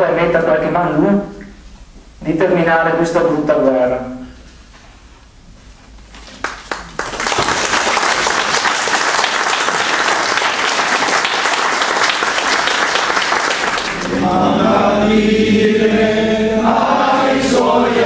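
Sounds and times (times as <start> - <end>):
audience applauding: 6.2 - 14.2
choir singing: 13.9 - 18.0.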